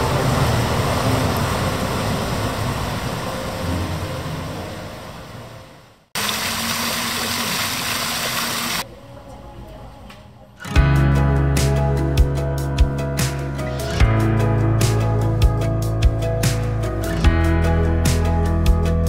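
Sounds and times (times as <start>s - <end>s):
fountain jets splashing: 0.0s - 5.5s, 6.2s - 8.8s
low traffic rumble: 0.0s - 6.1s.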